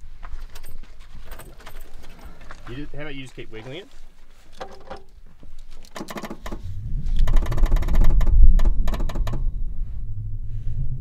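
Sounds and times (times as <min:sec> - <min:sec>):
sharp clicks: 0:04.9 - 0:09.5.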